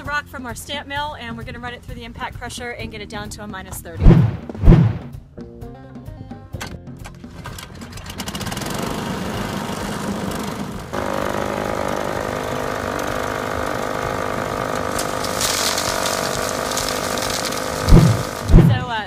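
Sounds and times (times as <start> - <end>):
rock crusher mill running: 7.5 - 19.0.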